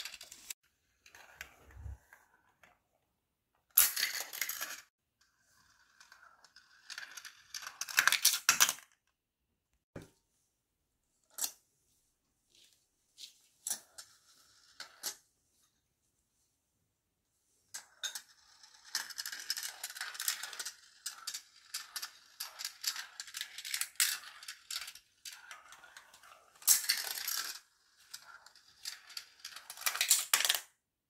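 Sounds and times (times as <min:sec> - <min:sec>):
marbles rattling through plastic track: 0:05.5 - 0:09.0, 0:17.8 - 0:30.7.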